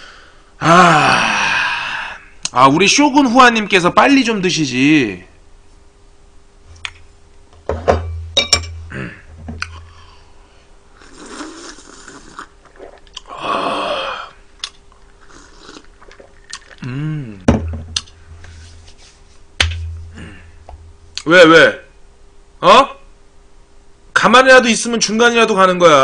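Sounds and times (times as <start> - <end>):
tableware clinking and tapping: 7.7 - 8.8
man drinking: 10.9 - 18.7
man murmuring: 16.8 - 17.5.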